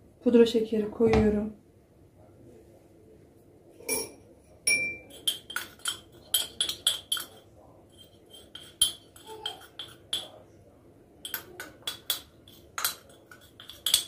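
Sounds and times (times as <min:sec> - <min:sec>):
china cup clinking: 0:03.8 - 0:10.4, 0:11.2 - 0:14.0.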